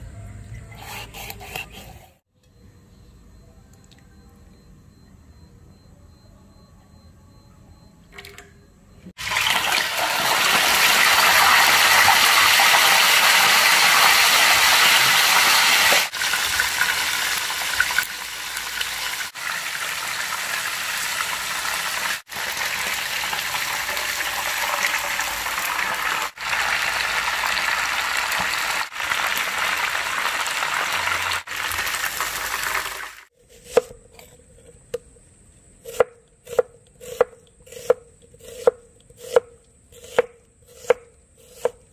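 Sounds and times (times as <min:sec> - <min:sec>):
fish sizzling in hot oil: 0:09.2 - 0:33.3
knife chopping on wooden board: 0:35.9 - 0:41.8.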